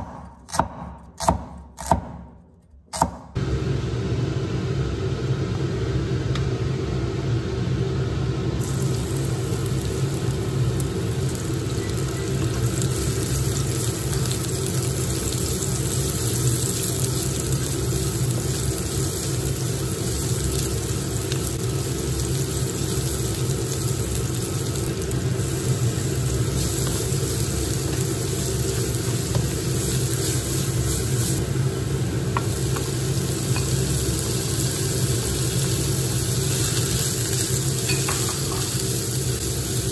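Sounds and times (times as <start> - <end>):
steady low hum: 2.6 - 39.9
onion sizzling in hot oil: 8.6 - 39.9.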